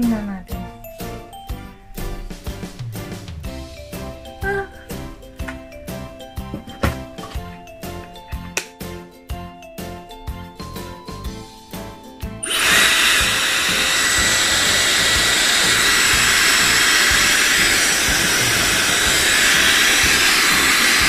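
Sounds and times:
background music with light beat: 0:00.0 - 0:21.0
hair dryer blowing: 0:12.4 - 0:21.0.

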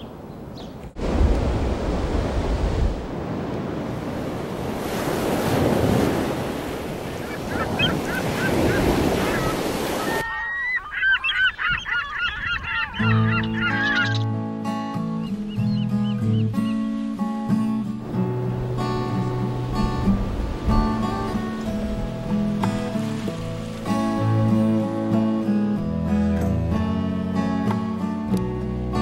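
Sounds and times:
wind buffeting microphone: 0:00.0 - 0:10.3, 0:11.5 - 0:13.3, 0:18.1 - 0:23.3
ocean surf washing: 0:00.9 - 0:10.9, 0:16.7 - 0:25.8
flock of birds calling: 0:07.0 - 0:14.3
acoustic guitar music: 0:13.0 - 0:29.0.

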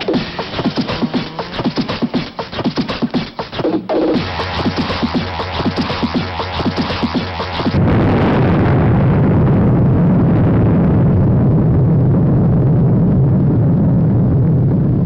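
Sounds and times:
electronic music: 0:00.0 - 0:07.9
explosion deep roar: 0:04.2 - 0:15.0.

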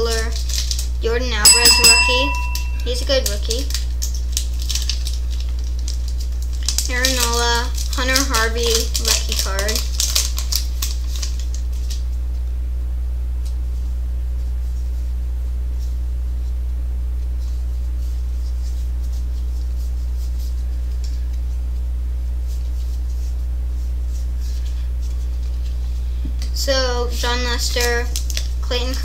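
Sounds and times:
cards and foil wrappers rustling: 0:00.0 - 0:01.3, 0:02.8 - 0:12.2, 0:24.1 - 0:29.0
low electrical hum: 0:00.0 - 0:29.0.

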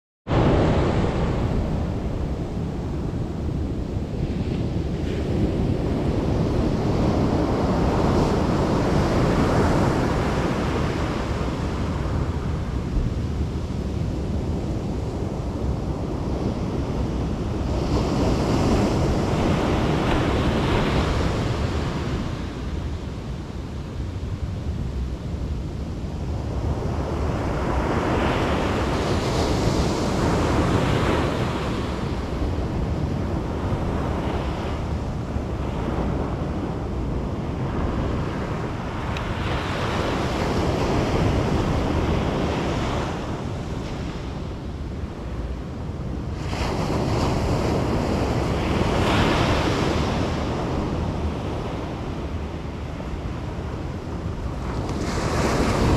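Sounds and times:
ocean surf breaking: 0:00.3 - 0:15.4, 0:26.3 - 0:55.9
wind rumble on microphone: 0:00.3 - 0:55.9.

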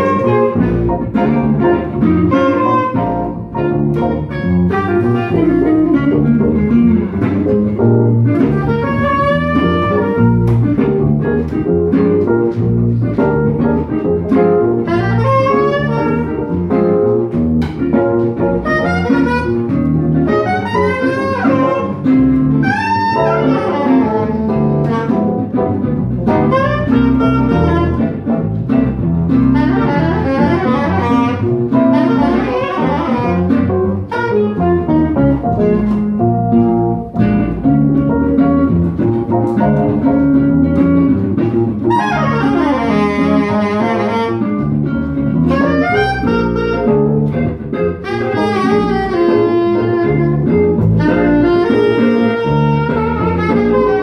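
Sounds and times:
acoustic guitar: 0:00.0 - 0:54.0
electric piano: 0:00.0 - 0:54.0
upright double bass: 0:00.0 - 0:54.0
soprano saxophone runs: 0:02.0 - 0:03.3, 0:14.7 - 0:16.5, 0:18.6 - 0:22.0, 0:22.6 - 0:25.5, 0:26.5 - 0:28.0, 0:29.5 - 0:35.9, 0:41.9 - 0:44.8, 0:45.4 - 0:46.9, 0:48.0 - 0:54.0.

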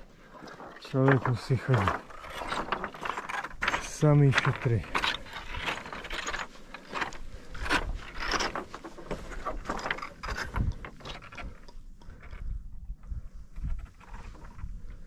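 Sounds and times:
footsteps crunching on rock scree: 0:00.0 - 0:11.6.

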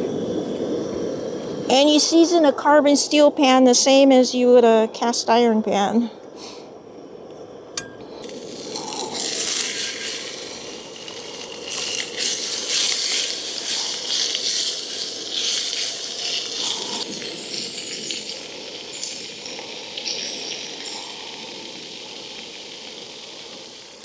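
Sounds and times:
meat sizzling in a pan: 0:08.2 - 0:24.0.

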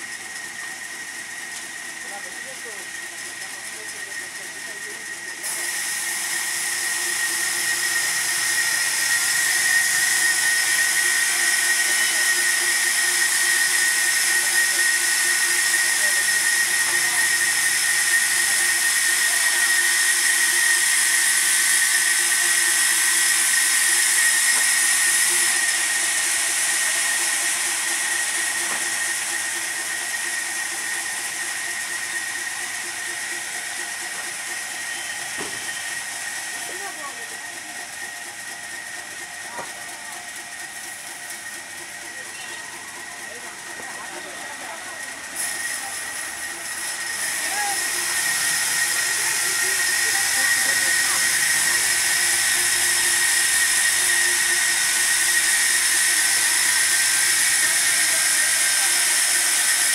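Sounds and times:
band saw cutting log: 0:00.0 - 0:59.9.

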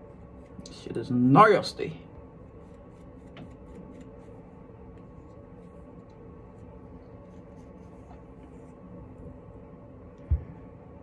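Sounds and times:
comb scratching through hair: 0:00.0 - 0:01.7, 0:02.3 - 0:09.2
low room hum: 0:00.0 - 0:11.0.

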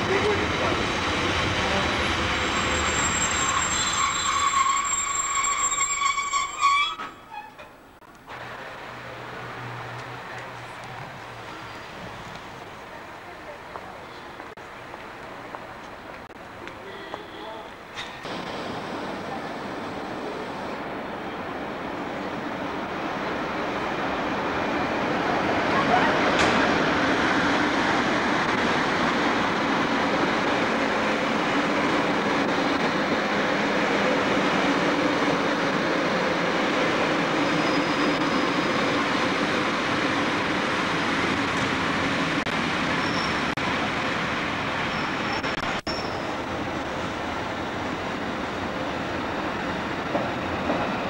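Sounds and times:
train wheels rumbling on rails: 0:00.0 - 0:51.0
short high squeaks: 0:02.4 - 0:07.8, 0:44.9 - 0:46.3.

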